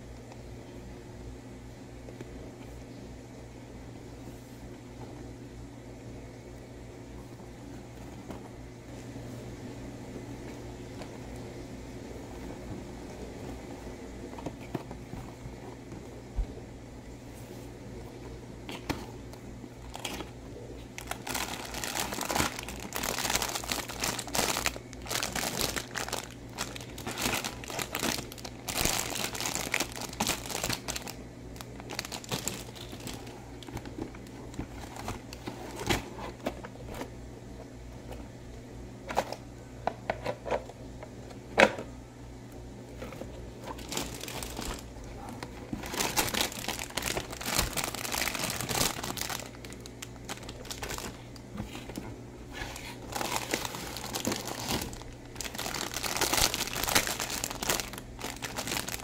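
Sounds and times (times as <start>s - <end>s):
cellophane bags crinkling: 19.8s - 36.4s, 43.6s - 52.0s, 52.6s - 59.0s.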